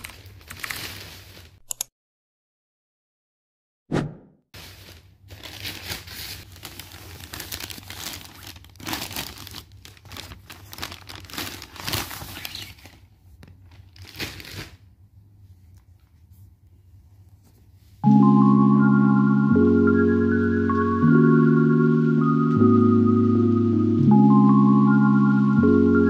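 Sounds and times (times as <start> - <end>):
plastic bag crinkling: 0.0 - 1.6, 4.6 - 14.9.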